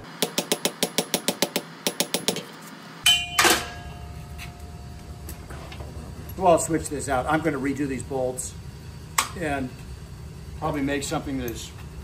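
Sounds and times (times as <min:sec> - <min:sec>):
hammer tapping on anvil: 0:03.0 - 0:04.1
loud metallic clank: 0:03.0 - 0:04.1
low hum: 0:03.0 - 0:12.0.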